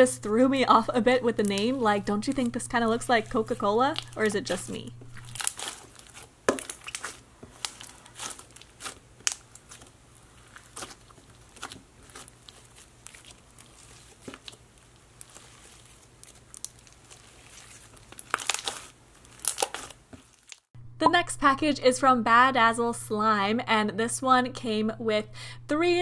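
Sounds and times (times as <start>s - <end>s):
slime squished by hand: 3.9s - 20.6s.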